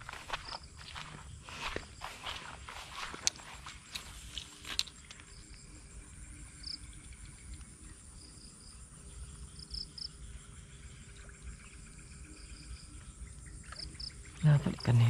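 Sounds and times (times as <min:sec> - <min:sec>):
faint insect-like tones: 0:00.0 - 0:15.0.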